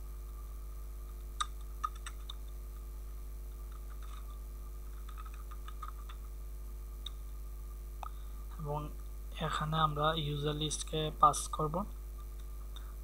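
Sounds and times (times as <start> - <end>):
low electrical hum: 0.0 - 13.0
computer keyboard clicking: 1.8 - 2.4.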